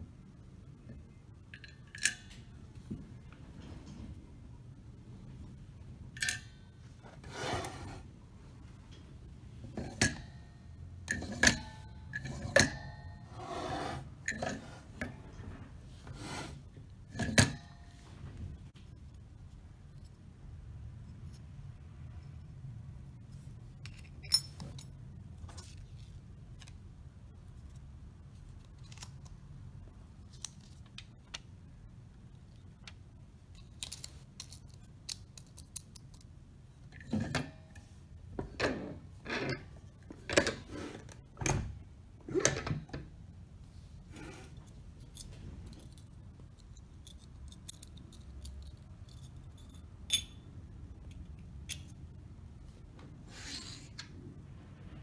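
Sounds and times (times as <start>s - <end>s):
small metal clicks: 1.4s - 2.5s, 32.5s - 36.3s, 45.0s - 52.0s.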